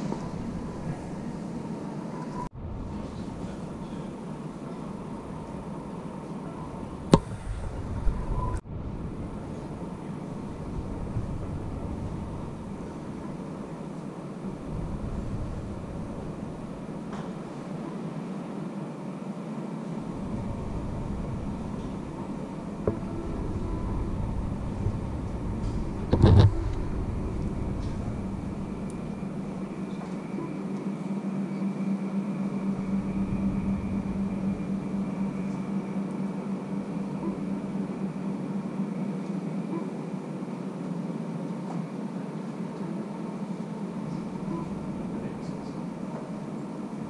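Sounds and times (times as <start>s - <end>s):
deep rumble: 6.7s - 13.5s, 14.4s - 17.1s, 20.0s - 30.4s, 32.2s - 38.4s
vehicle hum: 20.0s - 30.5s.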